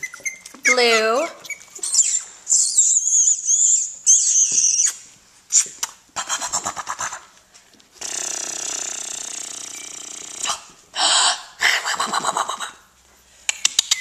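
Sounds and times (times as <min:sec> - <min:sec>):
puppies squealing: 0:00.0 - 0:05.7.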